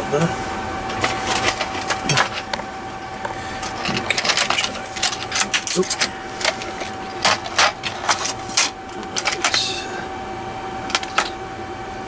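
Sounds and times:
faint steady whine: 0:00.0 - 0:12.0.

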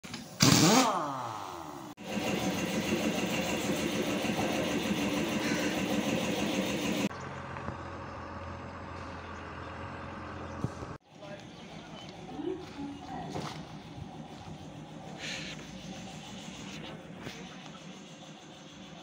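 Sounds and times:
diesel truck engine running: 0:02.0 - 0:19.0.

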